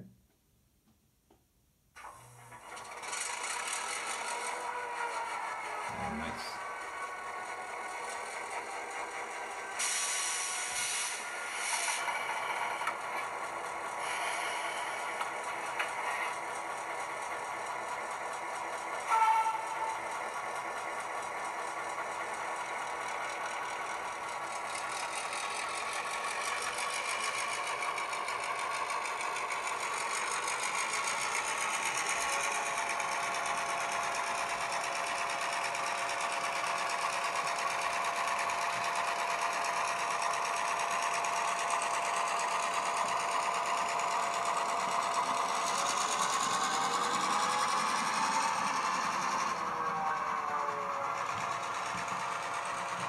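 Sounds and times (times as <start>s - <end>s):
diesel engine sound through small speaker: 2.1s - 53.0s.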